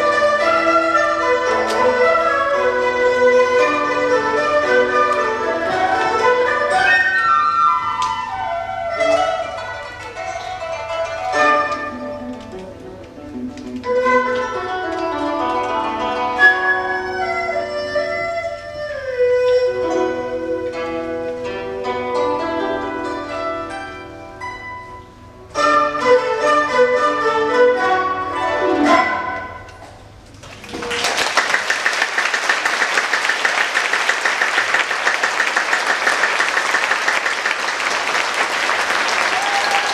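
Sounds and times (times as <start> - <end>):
traditional ensemble playing: 0.0 - 30.2
audience applause: 30.4 - 39.9.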